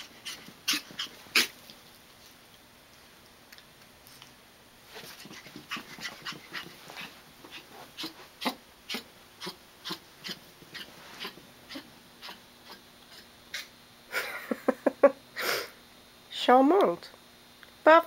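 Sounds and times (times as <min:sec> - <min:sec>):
puppy running on carpet: 0:04.9 - 0:08.2.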